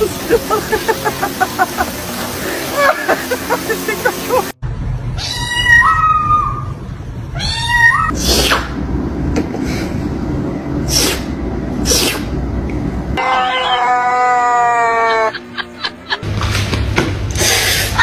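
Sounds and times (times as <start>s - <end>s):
cat meowing: 5.2s - 6.7s, 7.3s - 8.1s, 13.2s - 15.3s
cat hissing: 8.0s - 8.7s, 10.9s - 12.3s.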